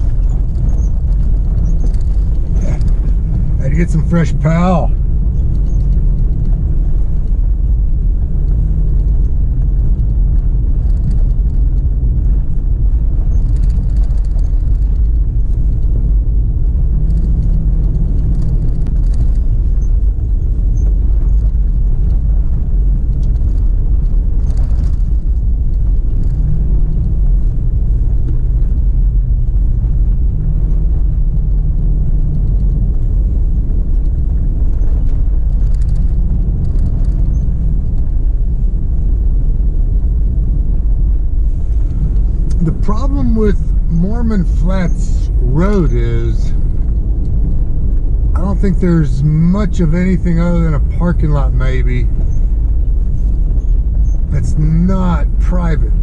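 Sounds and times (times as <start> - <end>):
faint clicks and rattles: 0.0 - 43.0
car engine and tyres droning: 0.0 - 56.0.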